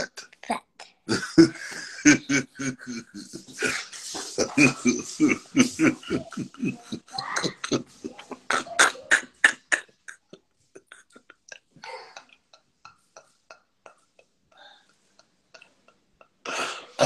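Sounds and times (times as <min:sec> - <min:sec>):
man laughing hard: 0:01.1 - 0:10.1.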